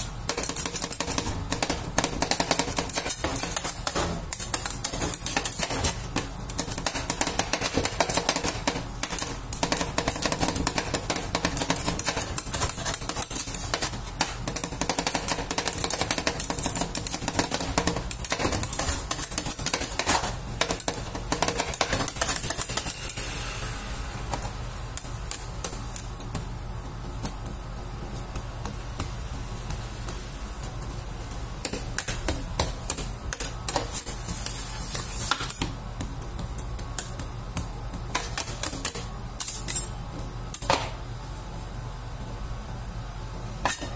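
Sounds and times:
steady low hum: 0.0 - 43.9
metal spatulas chopping on steel plate: 0.3 - 23.0, 38.1 - 39.9
spatulas scraping ice cream: 33.4 - 35.5.

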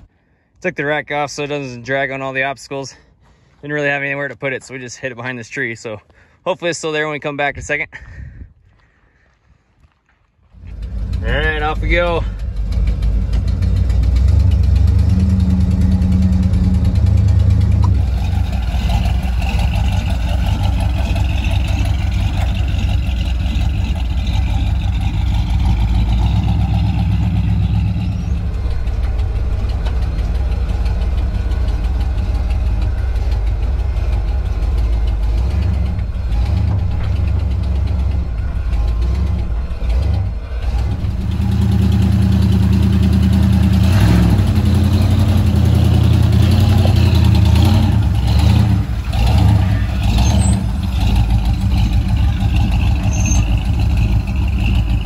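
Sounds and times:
engine crawling over rock: 10.4 - 55.0
vehicle knocks and rattles: 12.4 - 43.9.

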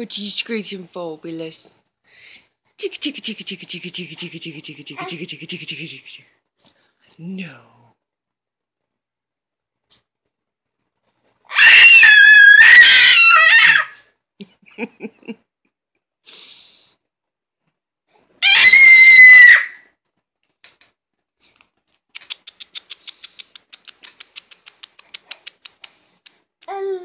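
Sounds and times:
baby screeching: 11.5 - 14.0, 18.4 - 19.8.

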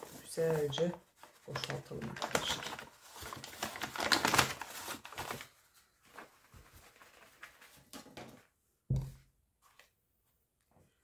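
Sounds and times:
paper bag rustling: 0.0 - 8.0
faint handling sounds: 0.0 - 8.5
soft knock: 8.9 - 9.2.

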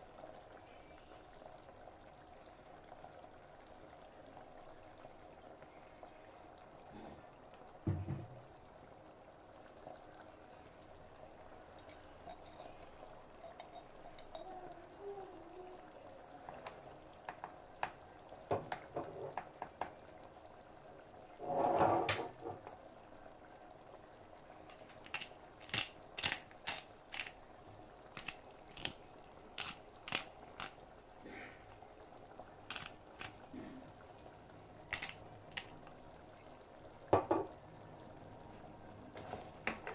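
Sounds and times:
sauce bubbling in a pan: 0.0 - 39.9.

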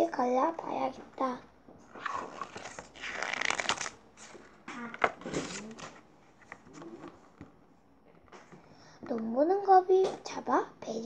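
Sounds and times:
paper rustling: 1.9 - 7.5
book pages turning: 1.9 - 7.6.

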